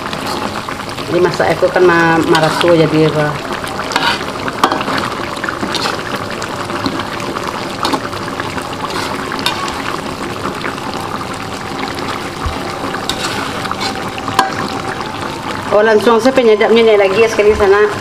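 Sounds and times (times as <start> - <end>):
gravy bubbling in a wok: 0.0 - 18.0
metal spatula stirring: 2.2 - 2.8, 3.9 - 6.2, 7.8 - 8.1, 8.8 - 10.0, 12.0 - 14.8.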